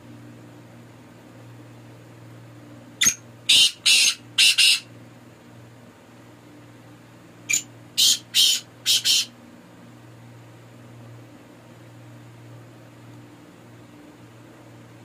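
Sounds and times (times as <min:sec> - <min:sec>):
francolin calling harsh notes: 0:03.0 - 0:04.9, 0:07.5 - 0:09.3.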